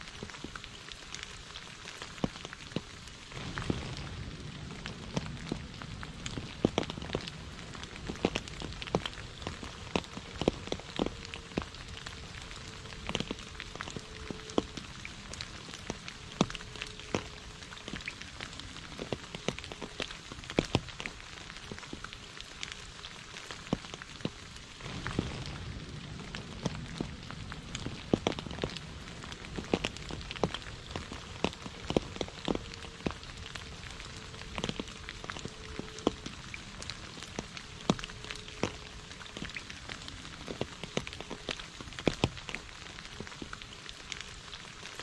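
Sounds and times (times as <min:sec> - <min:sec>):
rain falling on puddle: 0:00.0 - 0:45.0
low rumble: 0:03.3 - 0:19.3, 0:24.8 - 0:40.8.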